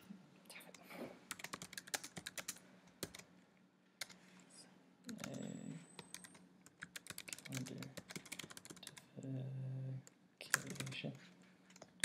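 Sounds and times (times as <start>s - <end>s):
typing on computer keyboard: 1.3s - 3.2s, 6.0s - 9.0s, 10.5s - 11.0s.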